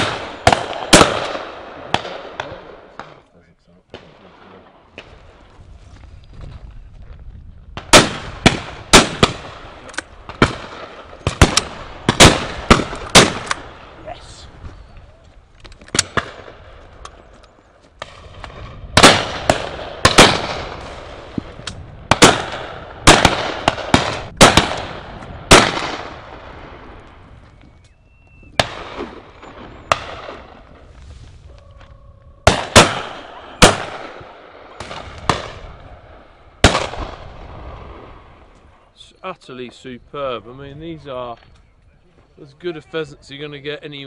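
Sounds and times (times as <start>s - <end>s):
shotgun shots with echo: 0.0s - 3.2s, 7.8s - 14.0s, 18.0s - 26.9s, 28.6s - 30.6s, 32.4s - 36.0s, 36.6s - 38.1s.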